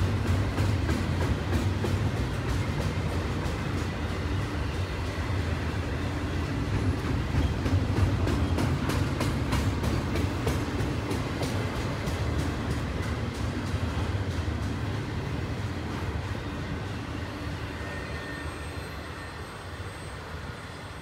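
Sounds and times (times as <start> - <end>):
train wheels rumbling on rail: 0.0 - 21.0
wheels clicking and clacking: 6.4 - 16.2.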